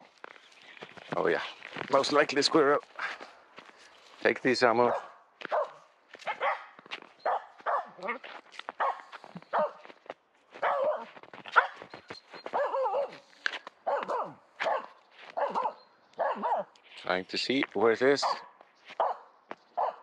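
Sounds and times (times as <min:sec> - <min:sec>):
dog barking rapidly: 0:04.8 - 0:08.0, 0:08.8 - 0:09.8, 0:10.6 - 0:11.9, 0:12.5 - 0:13.2, 0:13.8 - 0:16.7, 0:18.2 - 0:20.0.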